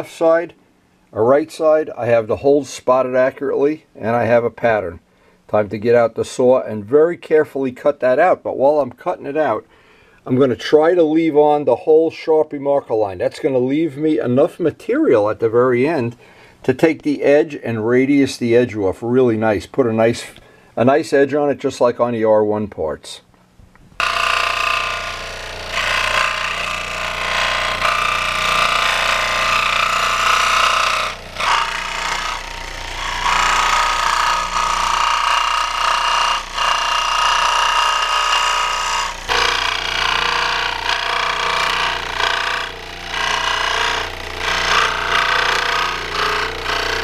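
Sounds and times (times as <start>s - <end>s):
motor hum: 23.9s - 47.0s
scroll saw cutting: 24.0s - 47.0s.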